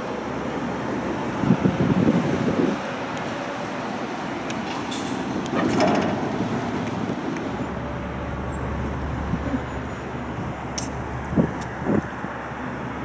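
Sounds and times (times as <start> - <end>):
water rushing: 0.0 - 11.3
boat engine drone: 0.0 - 13.0.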